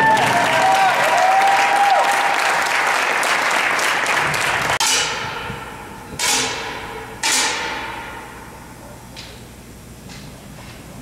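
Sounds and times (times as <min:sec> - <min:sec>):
audience applauding: 0:00.0 - 0:04.8
sharp cracks in reverberant hall: 0:01.9 - 0:09.4.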